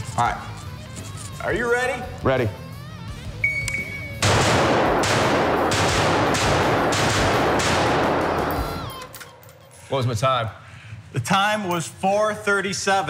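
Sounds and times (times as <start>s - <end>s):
shot timer beep: 3.4s - 4.2s
rapid gunshots with echo: 4.2s - 8.9s.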